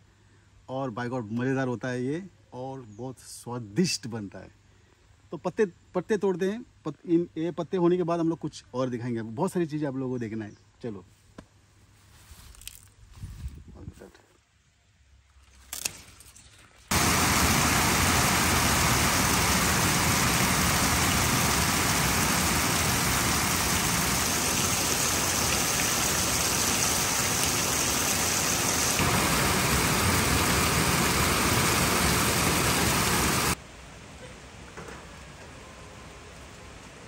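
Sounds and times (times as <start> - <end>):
heavy rain: 16.9 - 33.6.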